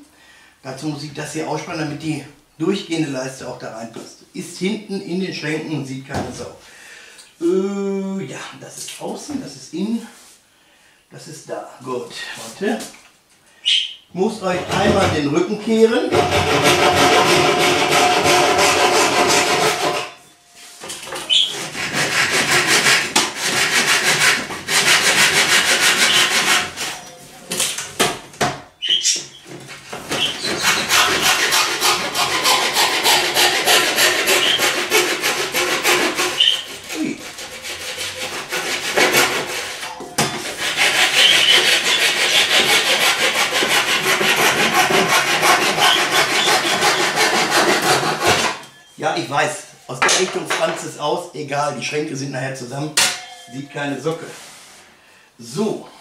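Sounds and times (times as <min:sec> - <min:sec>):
hand saw cutting chipboard: 0:16.1 - 0:20.2, 0:21.2 - 0:27.0, 0:30.1 - 0:48.6.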